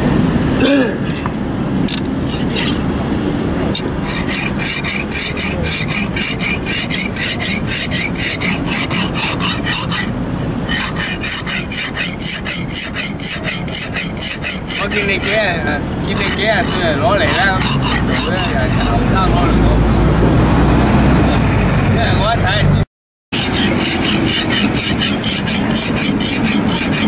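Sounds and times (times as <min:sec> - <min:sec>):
knife scraping on sharpening stone: 0:01.9 - 0:02.8, 0:03.8 - 0:10.1, 0:10.7 - 0:19.2, 0:23.4 - 0:27.0.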